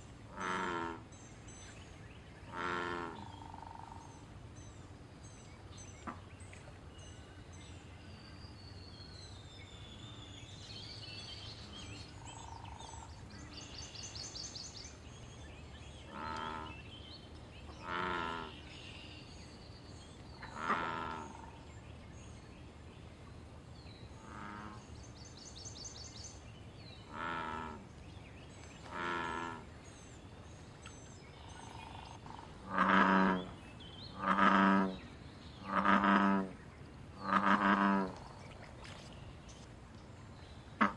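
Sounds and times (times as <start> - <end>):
bullfrogs calling: 0.3 - 1.1, 2.5 - 4.2, 12.2 - 13.2, 16.1 - 16.8, 17.8 - 18.6, 20.4 - 21.6, 24.2 - 24.8, 27.1 - 27.8, 28.8 - 29.7, 31.4 - 35.0, 35.6 - 36.6, 37.2 - 38.4
small birds chirping: 23.8 - 40.7.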